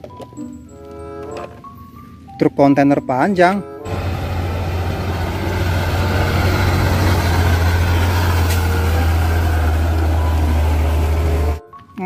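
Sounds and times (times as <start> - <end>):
truck diesel engine droning: 3.9 - 11.6
tyres on gravel road: 3.9 - 11.6.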